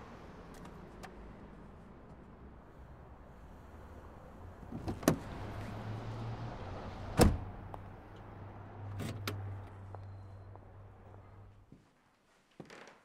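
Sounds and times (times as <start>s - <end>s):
car door slamming shut: 7.1s - 7.5s.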